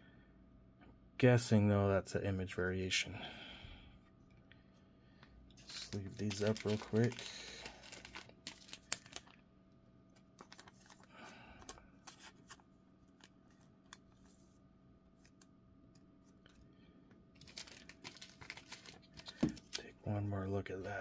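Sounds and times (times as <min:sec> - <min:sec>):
faint steady hum: 0:00.0 - 0:21.0
plastic sleeves crinkling: 0:05.6 - 0:09.4, 0:10.1 - 0:15.6, 0:17.4 - 0:19.9.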